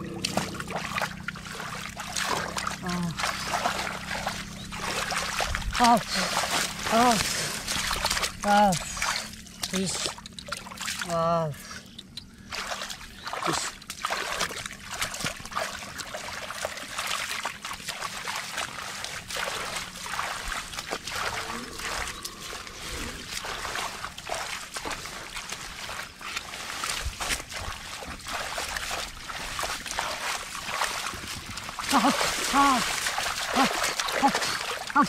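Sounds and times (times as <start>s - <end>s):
hands splashing in muddy water: 0.0s - 11.2s, 12.0s - 35.0s.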